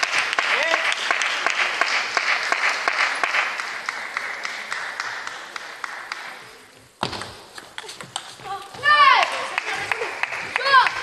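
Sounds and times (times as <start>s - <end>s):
applause: 0.0s - 6.6s, 9.0s - 11.0s.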